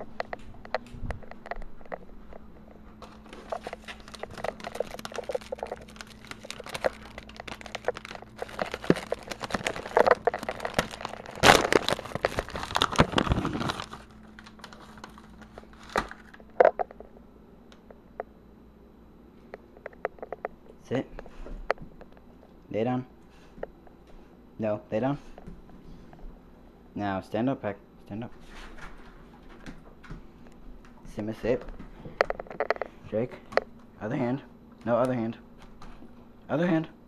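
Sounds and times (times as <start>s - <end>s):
plastic bag crinkling and rustling: 2.7s - 16.8s.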